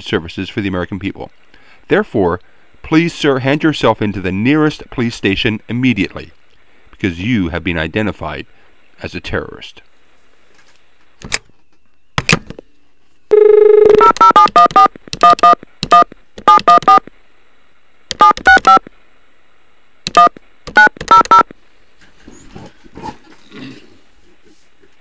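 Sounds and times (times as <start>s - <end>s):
telephone dial tone: 13.3s - 15.6s, 20.1s - 21.4s
keypad beeps: 13.3s - 17.0s, 18.1s - 18.9s, 20.1s - 21.5s.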